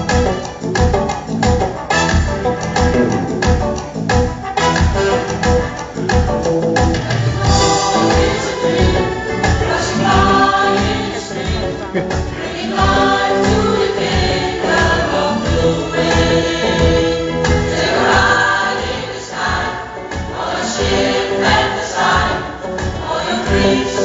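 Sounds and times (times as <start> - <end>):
pop choir singing: 6.9 - 24.0.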